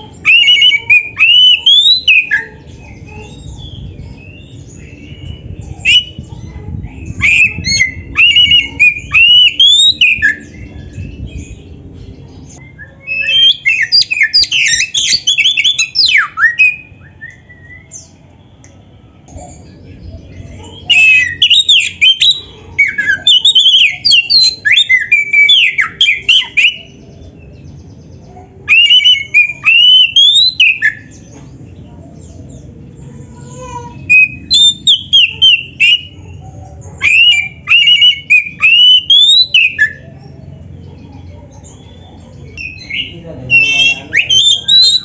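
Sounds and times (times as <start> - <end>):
bird singing whistled notes: 0.2 - 11.7, 12.6 - 18.9, 20.3 - 27.0, 28.6 - 31.3, 34.0 - 36.3, 37.0 - 40.2, 41.7 - 45.0.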